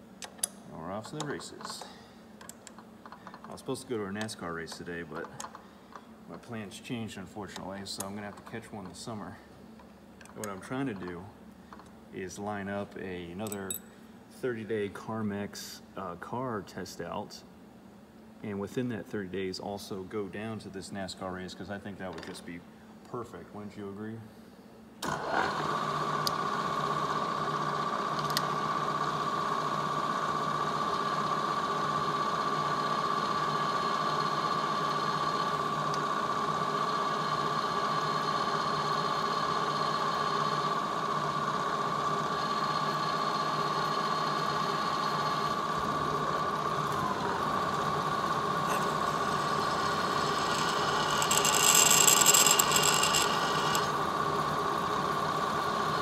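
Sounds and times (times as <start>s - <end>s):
milling machine spindle whine: 25.0s - 56.0s
drill bit screeching into metal: 48.7s - 53.9s.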